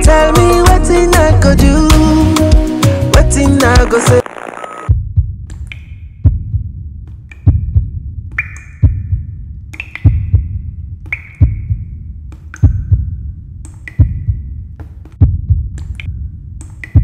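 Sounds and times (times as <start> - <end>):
heartbeat thumps: 4.9 - 5.5, 6.2 - 13.4, 14.0 - 15.8.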